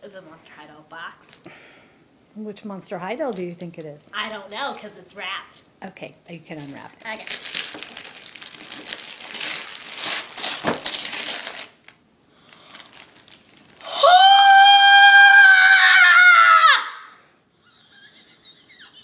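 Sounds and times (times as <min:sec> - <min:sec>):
wrapping paper tearing: 0:04.2 - 0:04.8, 0:06.5 - 0:13.9
girl screaming excitedly: 0:13.8 - 0:17.2.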